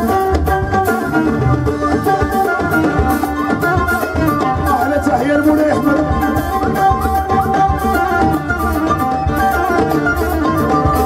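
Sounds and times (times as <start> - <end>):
band music: 0.0 - 11.0
bass guitar: 0.0 - 11.0
keyboard: 0.0 - 11.0
steady hand drum rhythm: 0.0 - 11.0
violin melody with sliding notes: 0.0 - 11.0.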